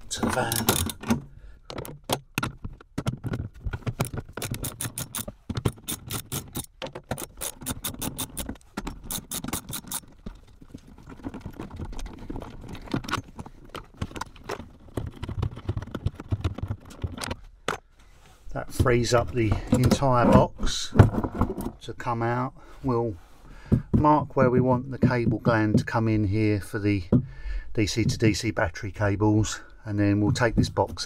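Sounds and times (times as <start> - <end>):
tool and bolts rattling: 0.0 - 17.9, 18.6 - 21.8
socket ratchet clicking: 4.0 - 10.1.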